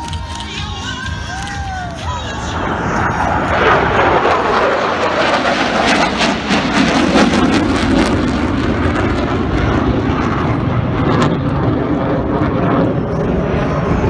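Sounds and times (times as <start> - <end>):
jet fighter flying past: 2.2 - 14.0.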